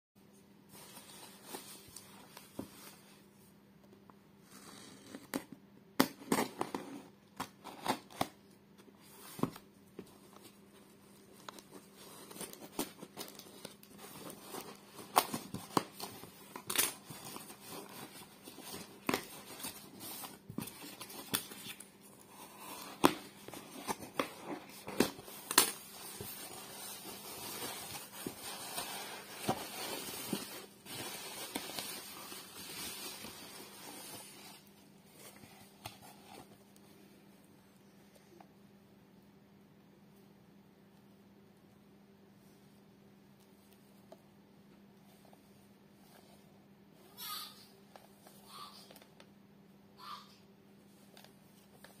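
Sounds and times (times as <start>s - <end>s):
bubble wrap crinkling: 10.3s - 36.6s.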